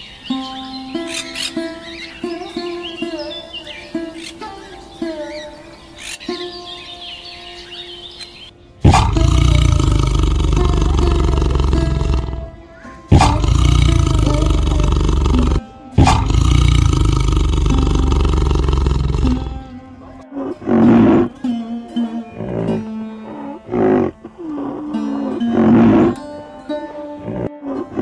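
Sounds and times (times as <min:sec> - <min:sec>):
background music: 0:00.6 - 0:28.0
big cat roaring: 0:08.8 - 0:19.7, 0:20.4 - 0:21.4, 0:22.4 - 0:26.2, 0:27.2 - 0:28.0.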